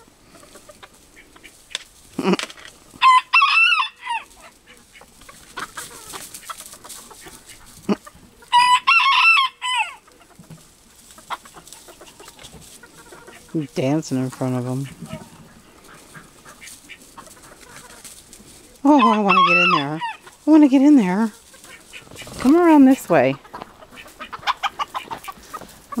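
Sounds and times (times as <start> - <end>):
chicken clucking: 0.0 - 26.0
rooster crowing: 3.0 - 4.3, 8.5 - 10.0.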